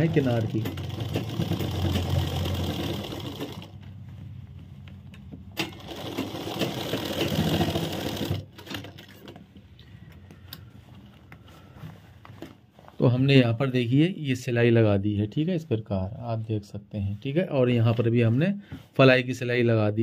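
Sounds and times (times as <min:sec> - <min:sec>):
sewing machine sewing: 0:00.0 - 0:03.8, 0:05.6 - 0:09.4.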